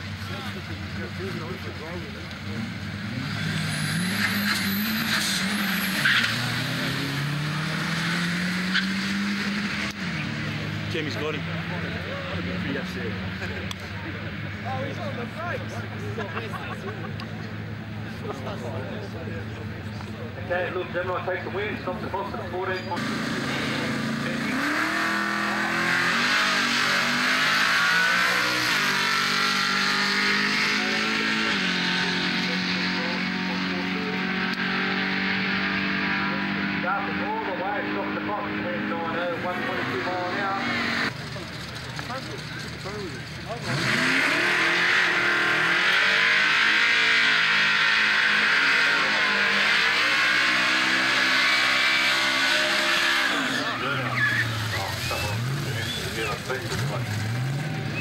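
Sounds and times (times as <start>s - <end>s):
car engine accelerating: 0.0s - 58.0s
gear change: 39.3s - 46.0s.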